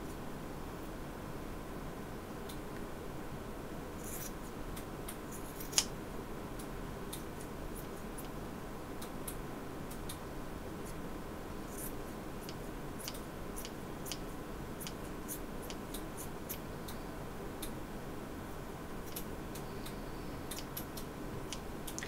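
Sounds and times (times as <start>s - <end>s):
scissors snipping yarn: 5.3s - 5.9s.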